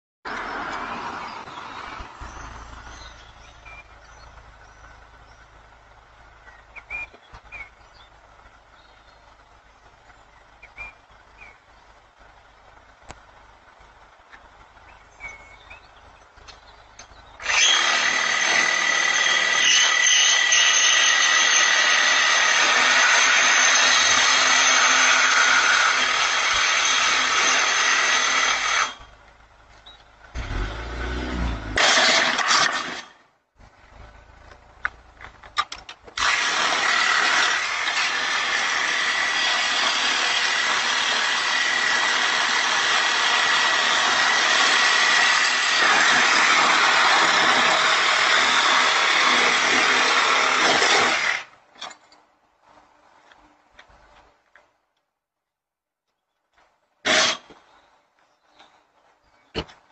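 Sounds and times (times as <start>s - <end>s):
power tool grinding metal: 17.4s - 29.0s.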